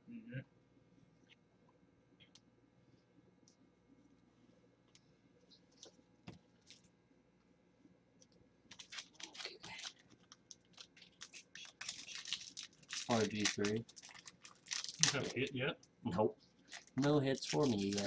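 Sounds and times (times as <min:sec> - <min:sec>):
trading cards clicking and rustling: 0:08.7 - 0:15.4, 0:16.7 - 0:18.0.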